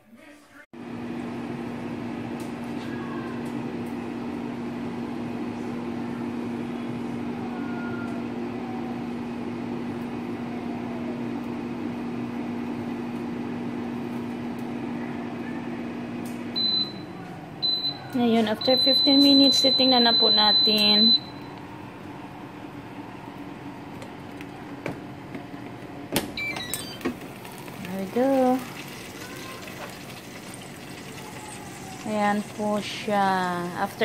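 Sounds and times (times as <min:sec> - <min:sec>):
air fryer humming: 0:00.1 - 0:34.0
high beep: 0:18.6 - 0:21.5.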